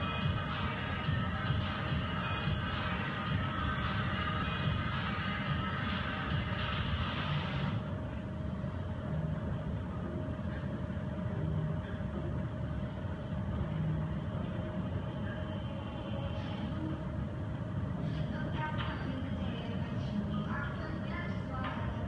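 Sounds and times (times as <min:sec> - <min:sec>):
music: 0:00.0 - 0:07.9
faint constant hum: 0:00.0 - 0:22.0
steady low rumble: 0:00.0 - 0:22.0.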